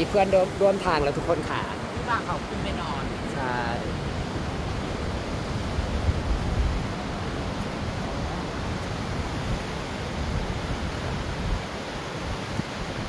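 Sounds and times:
rushing outdoor noise: 0.0 - 13.0.

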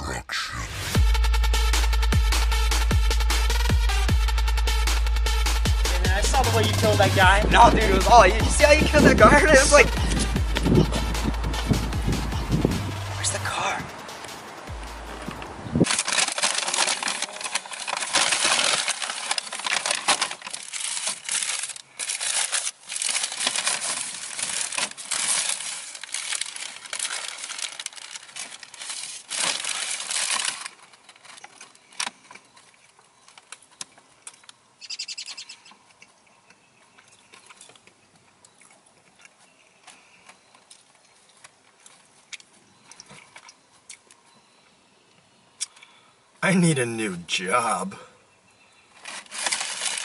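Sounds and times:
paper bag rustling and crinkling: 6.1 - 11.8, 15.8 - 33.8, 48.9 - 50.0.

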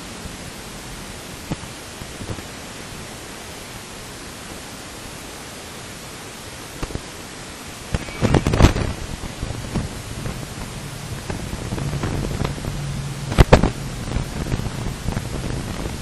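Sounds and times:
aircraft cabin hiss: 6.8 - 16.0.

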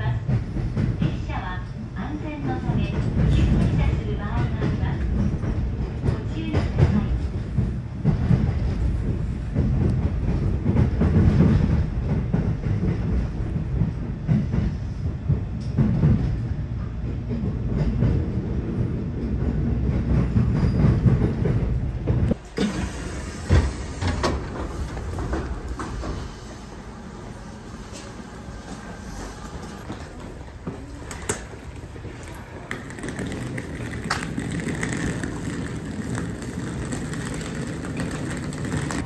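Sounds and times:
diesel railcar rumbling: 0.0 - 39.0
wheels knocking on rail joints: 31.4 - 39.0.

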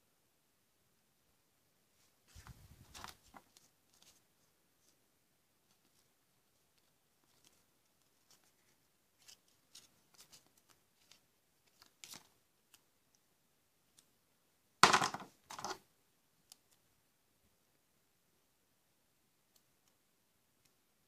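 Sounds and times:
paper slip rustling: 2.2 - 5.0, 5.6 - 12.8.

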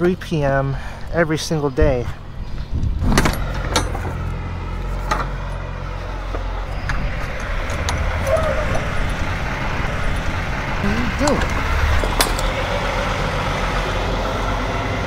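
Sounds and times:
truck engine idling: 0.0 - 15.0
metallic clicks and jingles: 10.1 - 12.6.

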